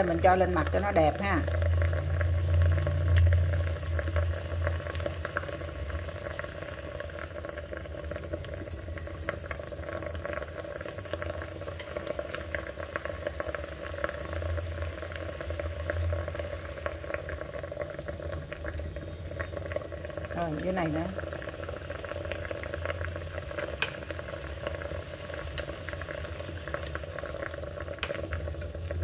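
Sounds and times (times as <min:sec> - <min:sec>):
low hum: 0:00.0 - 0:06.8
water boiling and bubbling: 0:00.0 - 0:29.0.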